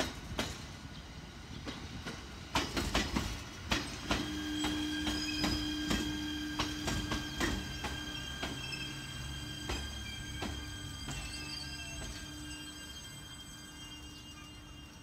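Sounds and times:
train wheels clicking over rail joints: 0.0s - 14.2s.

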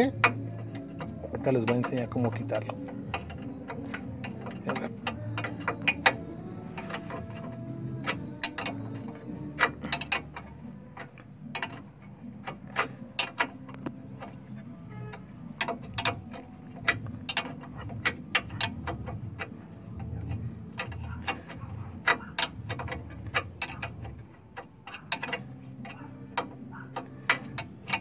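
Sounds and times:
wrench clicking on nut: 0.0s - 28.0s.

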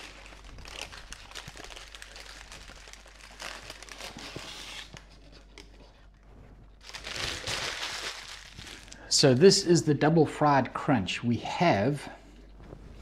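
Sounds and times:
paper wrapper crinkling: 0.0s - 6.2s, 6.8s - 9.1s.

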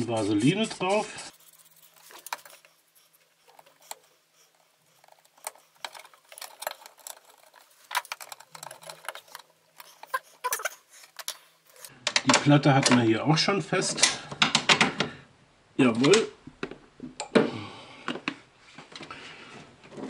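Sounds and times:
small parts clicking and tapping: 1.3s - 13.0s.

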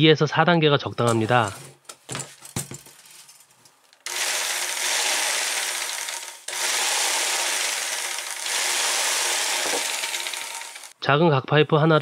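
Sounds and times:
jigsaw running: 4.0s - 11.0s.

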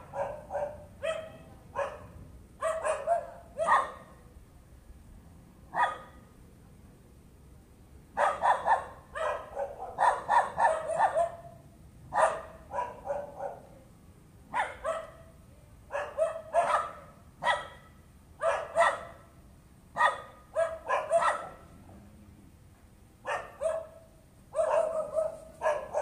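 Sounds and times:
dog barking: 0.0s - 4.2s, 5.7s - 6.2s, 8.2s - 13.8s, 14.5s - 19.3s, 20.0s - 21.7s, 23.2s - 26.0s.

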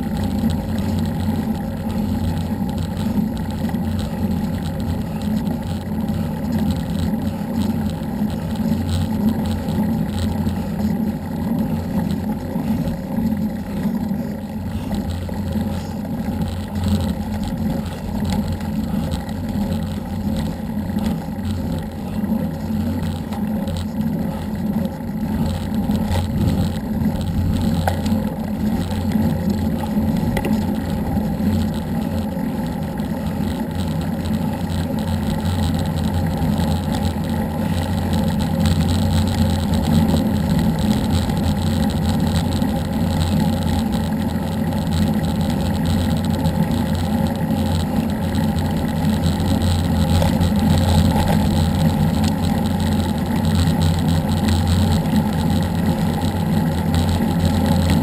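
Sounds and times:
tyre noise on asphalt: 0.0s - 58.0s.

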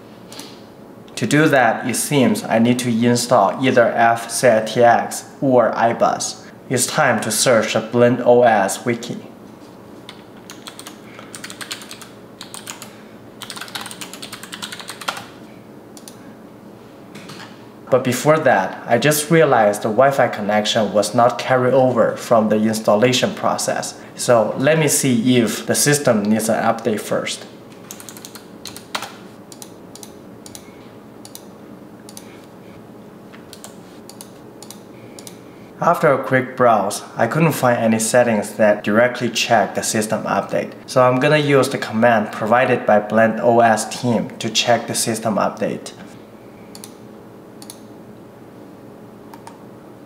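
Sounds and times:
faint room hum: 0.0s - 50.0s
typing on a keyboard: 10.5s - 15.3s, 27.9s - 30.6s
keyboard and mouse clicks: 16.0s - 16.2s, 27.8s - 31.5s, 33.5s - 35.4s, 49.3s - 49.6s.

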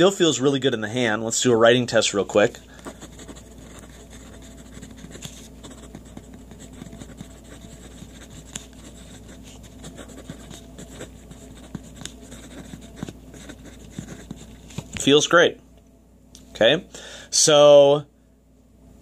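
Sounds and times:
faint low hum: 0.0s - 19.0s
pencil scratching on paper: 2.8s - 14.7s.

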